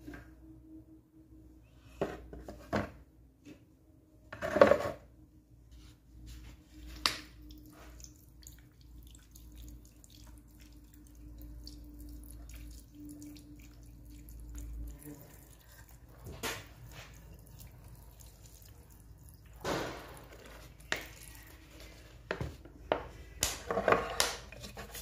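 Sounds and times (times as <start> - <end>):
liquid trickling and splashing: 7.2 - 22.0.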